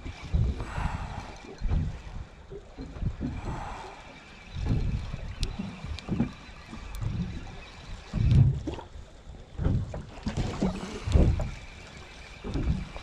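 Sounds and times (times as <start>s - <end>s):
water lapping against boat hull: 0.0s - 13.0s
wind: 0.0s - 13.0s.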